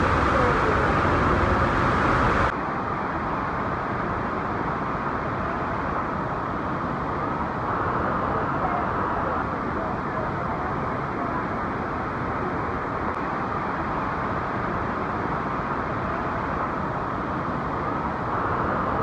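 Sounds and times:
waterfall roaring: 0:00.0 - 0:03.8.

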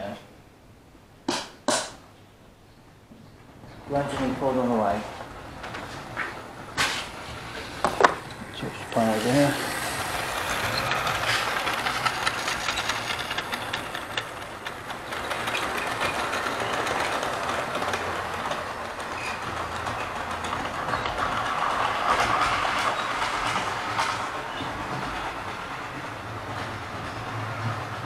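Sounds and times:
wheels clicking over rail joints: 0:03.4 - 0:28.0
model train motor whir: 0:07.1 - 0:20.3.

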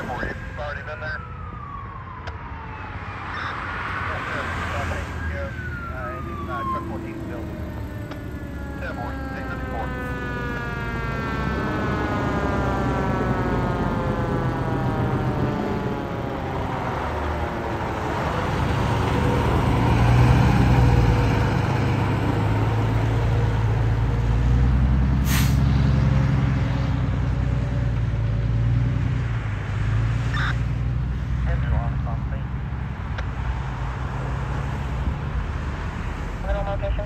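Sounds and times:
fire engine siren winding down: 0:00.0 - 0:27.7
diesel engine rumbling: 0:00.0 - 0:37.0
air brakes hiss: 0:25.2 - 0:25.6.

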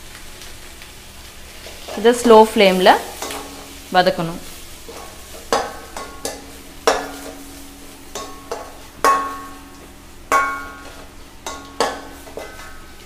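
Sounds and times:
faint frying sizzle: 0:00.0 - 0:13.0
metal spoon knocking on pan: 0:05.5 - 0:07.2, 0:08.1 - 0:09.7, 0:10.3 - 0:12.7.

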